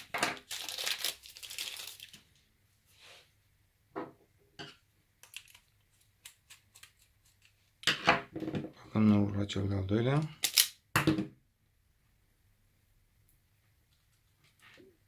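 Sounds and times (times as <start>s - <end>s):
hands rustling and crinkling: 0.0s - 2.3s.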